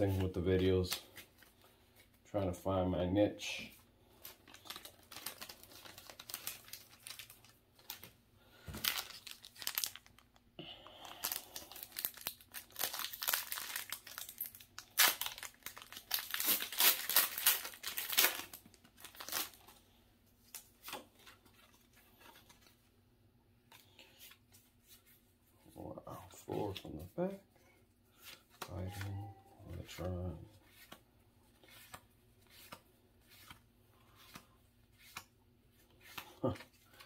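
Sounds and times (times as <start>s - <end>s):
cards being handled: 0.0s - 2.2s, 3.6s - 10.4s, 28.1s - 37.0s
foil wrapper crinkling and tearing: 4.1s - 8.1s, 8.7s - 10.4s, 11.0s - 19.7s.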